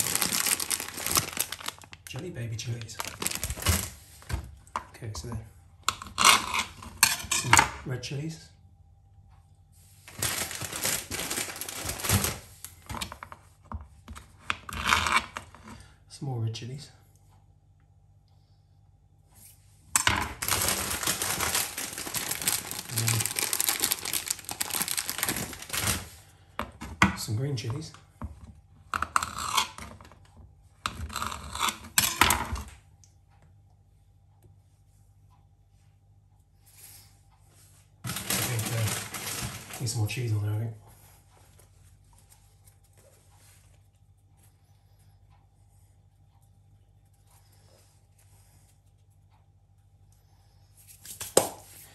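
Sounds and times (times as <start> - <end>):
plastic packet crinkling: 0.0 - 4.0, 10.1 - 12.8, 20.3 - 26.2, 38.0 - 40.2
faint steady hum: 0.0 - 51.9.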